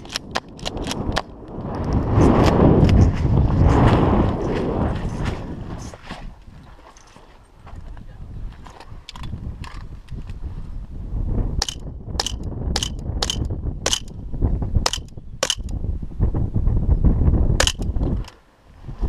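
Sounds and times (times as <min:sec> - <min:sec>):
steady low rumble: 0:00.0 - 0:06.0
airsoft pistol shots: 0:11.6 - 0:14.1, 0:14.9 - 0:15.7, 0:17.6 - 0:17.8.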